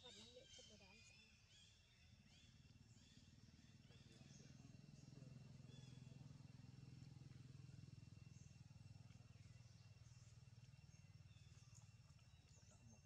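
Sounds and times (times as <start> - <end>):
faint high bird chirps: 0.0 - 6.6.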